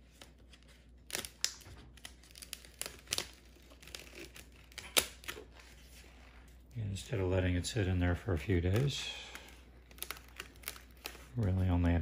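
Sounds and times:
plastic crinkling and crackling: 0:00.0 - 0:12.0
sharp plastic cracks: 0:01.1 - 0:05.5, 0:08.6 - 0:11.4.

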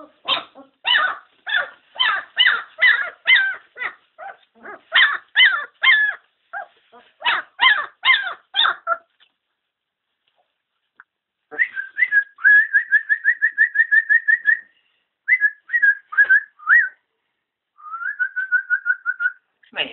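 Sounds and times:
puppies yelping: 0:00.0 - 0:09.2.

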